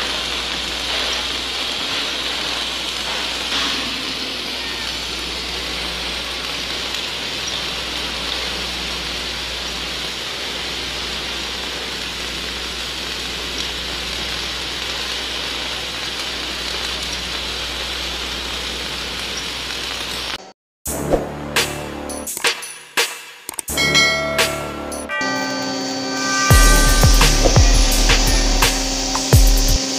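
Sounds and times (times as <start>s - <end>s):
welding arc crackling hiss: 0.0s - 20.5s, 23.7s - 29.9s
low hum: 24.0s - 29.8s.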